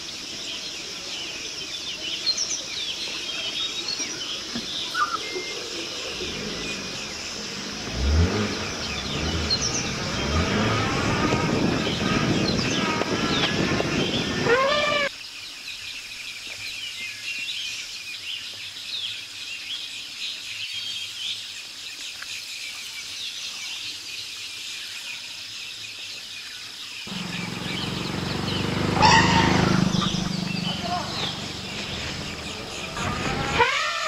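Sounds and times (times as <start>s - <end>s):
engine and road noise: 0.0s - 15.1s, 27.1s - 34.0s
forest birds chirping: 0.0s - 34.0s
rising bird call: 14.3s - 15.1s, 27.1s - 34.0s.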